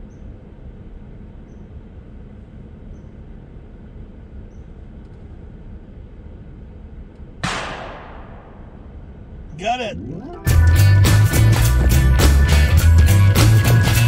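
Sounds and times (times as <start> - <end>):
steady low rumble: 5.5 - 11.5
shotgun shot: 7.4 - 8.9.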